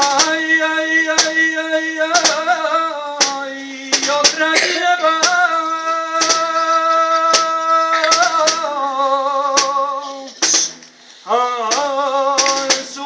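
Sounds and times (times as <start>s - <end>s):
man singing unaccompanied: 0.0s - 13.0s
sharp knocks: 3.2s - 3.4s, 4.0s - 8.7s, 11.7s - 13.0s.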